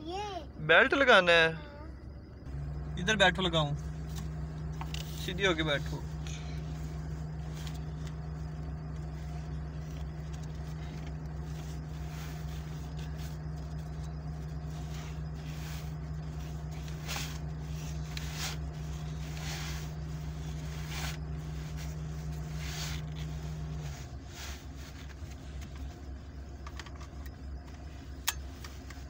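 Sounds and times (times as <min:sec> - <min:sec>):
low hum inside car: 0:00.0 - 0:29.0
seat belt clicks and rustles: 0:04.0 - 0:05.3, 0:07.0 - 0:29.0
cloth brushing microphone: 0:06.6 - 0:25.5.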